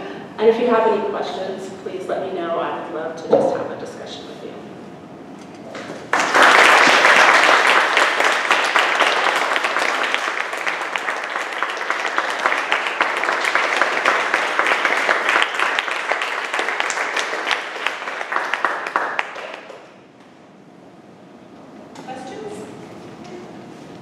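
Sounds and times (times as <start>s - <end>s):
audience applauding: 5.8s - 19.9s.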